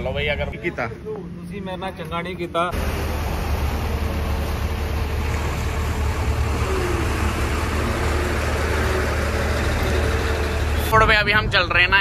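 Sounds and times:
diesel truck rumbling past: 2.6s - 12.0s.

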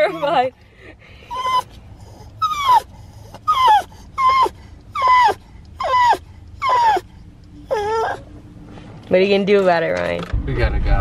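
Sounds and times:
dog whining: 0.0s - 0.5s, 1.2s - 8.3s.

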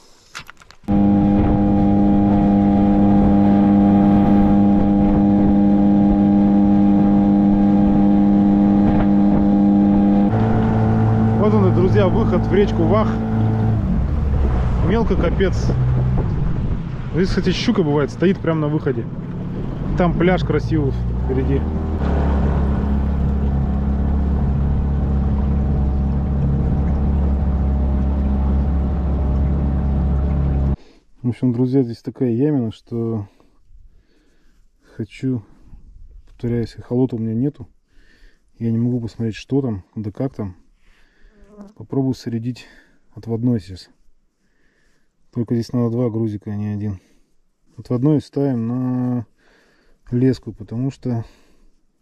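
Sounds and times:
outboard motor droning: 0.9s - 30.8s.

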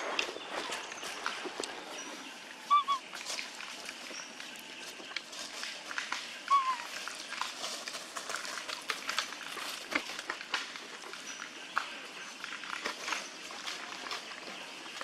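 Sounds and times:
rustling in dry leaf litter: 0.0s - 15.0s
monkey squeak: 2.7s - 3.0s, 6.5s - 6.9s.

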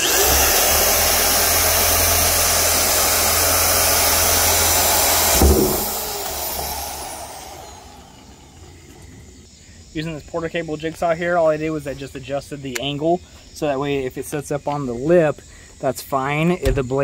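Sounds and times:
drill boring through plastic: 0.0s - 8.6s
short knock: 5.4s - 6.0s.

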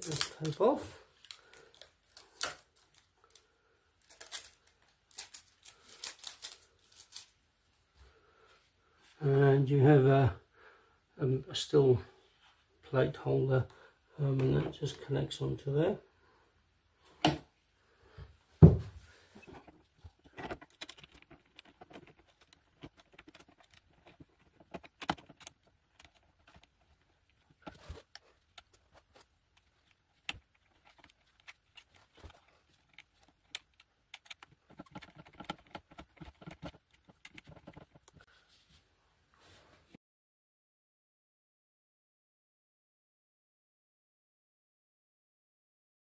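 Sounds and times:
loud thump: 18.6s - 18.9s
clicks taps and rattles: 19.4s - 38.3s.

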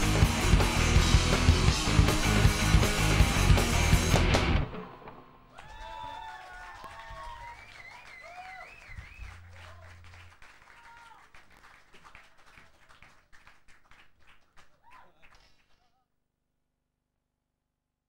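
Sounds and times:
audience clapping and cheering: 0.0s - 4.0s, 5.5s - 16.0s
rock band low note ringing: 0.0s - 5.5s
audience whistling: 5.6s - 11.2s.

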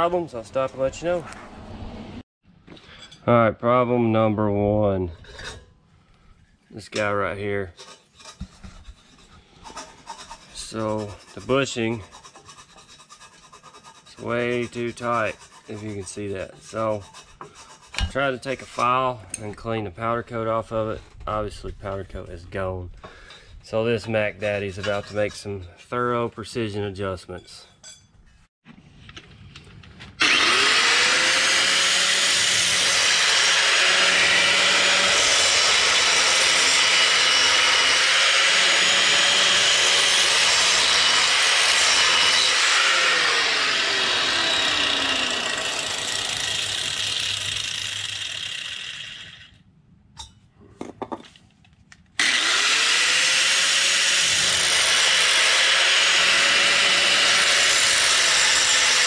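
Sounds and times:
angle grinder grinding metal: 7.8s - 19.5s, 30.2s - 49.6s, 52.2s - 59.0s.

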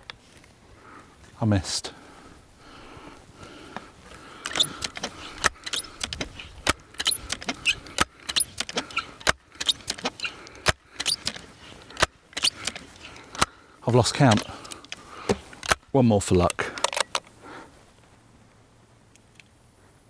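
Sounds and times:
air rifle pump clicks: 4.1s - 13.5s, 14.2s - 15.8s, 16.4s - 17.4s.

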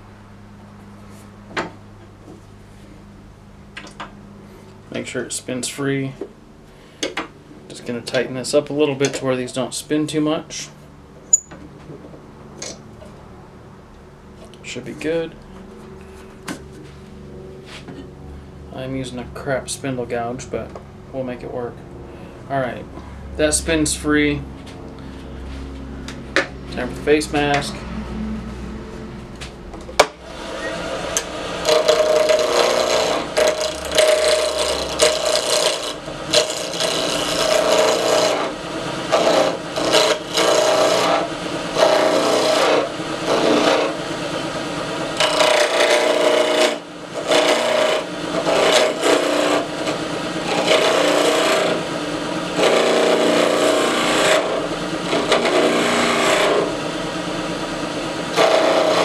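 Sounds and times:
wood lathe humming: 24.9s - 59.0s
gouge cutting wood: 30.0s - 44.1s, 45.0s - 56.9s, 58.2s - 59.0s.

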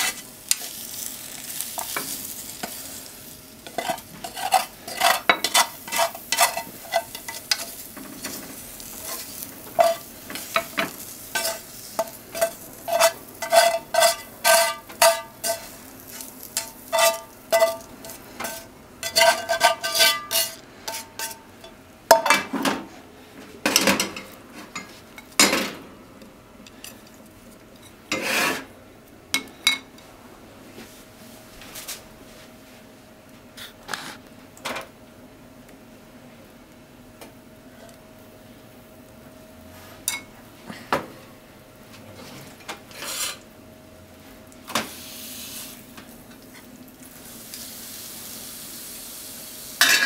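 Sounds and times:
chopsticks tapping a frying pan: 3.6s - 22.3s.

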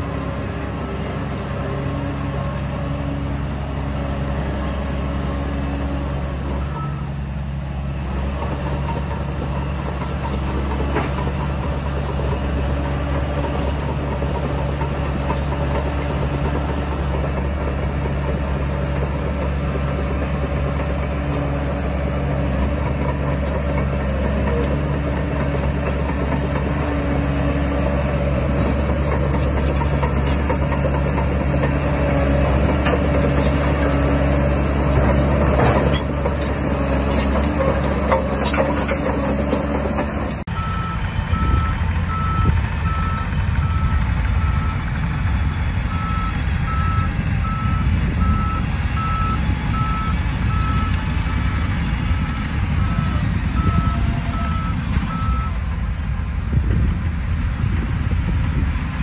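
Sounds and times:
bulldozer diesel engine: 0.0s - 59.0s
track clatter: 5.9s - 59.0s
reversing alarm beeping: 40.6s - 44.8s, 45.9s - 55.6s.

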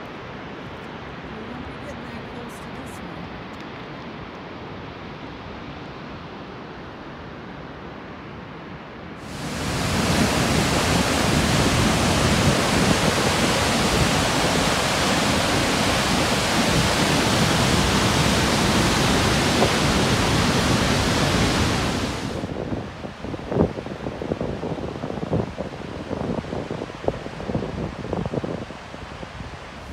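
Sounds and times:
waterfall rushing: 9.2s - 22.7s.

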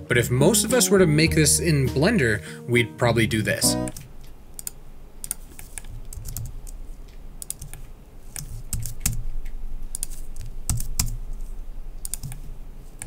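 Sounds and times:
computer keyboard keystrokes: 3.9s - 6.8s, 7.4s - 9.2s, 9.9s - 11.2s, 12.0s - 12.4s.

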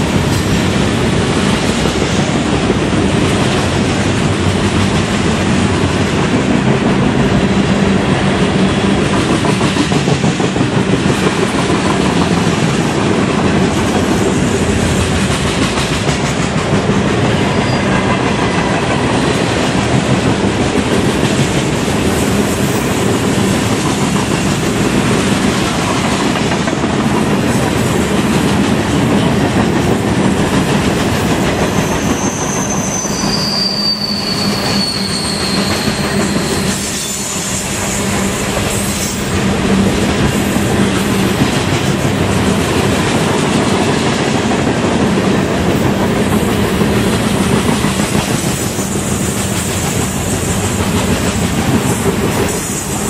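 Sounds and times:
freight train rumbling past: 0.0s - 53.0s
train wheel squeal: 17.4s - 18.6s, 31.1s - 39.4s, 47.2s - 53.0s.

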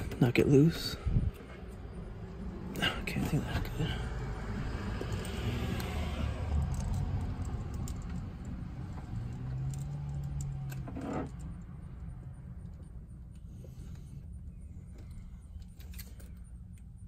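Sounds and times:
wires clicking and rattling on metal: 5.0s - 13.5s.

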